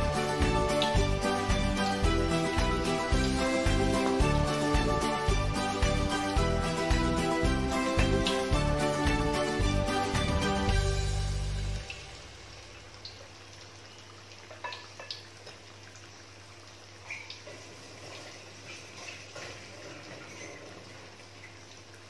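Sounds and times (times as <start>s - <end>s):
background music: 0.0s - 12.8s
deep-frying sizzle with pops: 0.0s - 22.0s.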